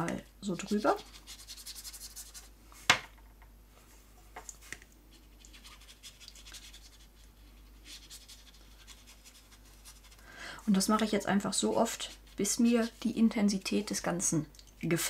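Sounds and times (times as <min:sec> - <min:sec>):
brush scrubbing damp card: 0:00.5 - 0:02.6, 0:05.1 - 0:13.7.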